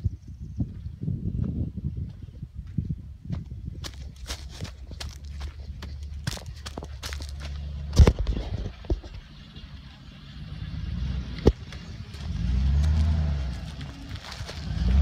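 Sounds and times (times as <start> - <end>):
truck engine revving: 9.1 - 15.0.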